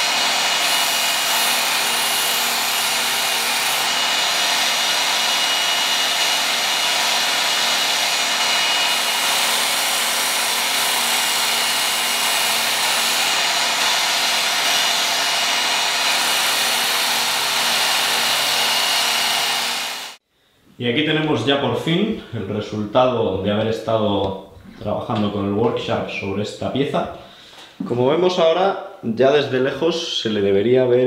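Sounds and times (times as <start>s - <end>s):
belt sharpener grinding steel: 0.0s - 20.2s.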